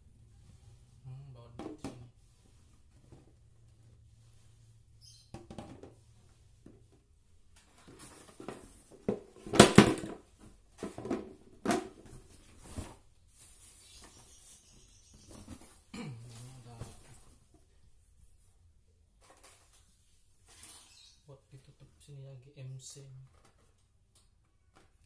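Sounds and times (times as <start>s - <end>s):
hollow plastic knocks and clatter: 1.5s - 2.1s, 5.3s - 6.0s, 6.6s - 12.4s
cardboard rustling: 7.6s - 14.4s.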